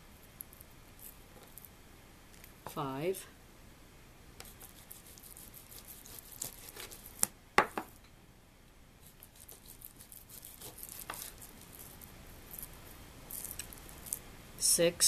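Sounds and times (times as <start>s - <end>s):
knife slicing meat: 4.4s - 7.3s, 9.0s - 12.7s
knife knocking on wooden board: 7.6s - 7.9s.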